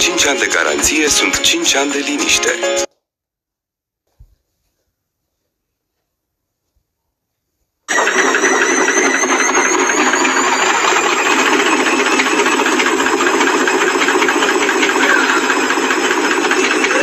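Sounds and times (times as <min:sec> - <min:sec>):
washing machine clattering: 0:08.0 - 0:17.0.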